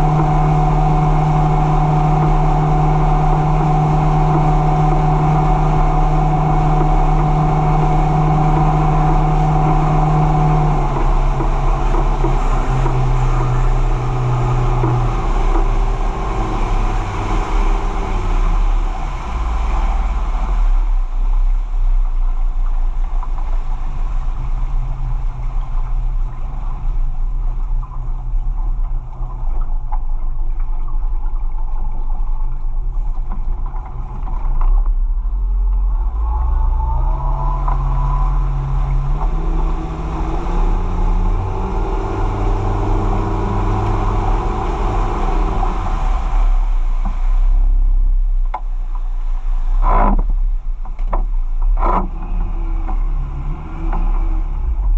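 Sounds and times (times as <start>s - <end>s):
boat engine running: 0.0s - 54.9s
water and wind rushing: 0.0s - 54.9s.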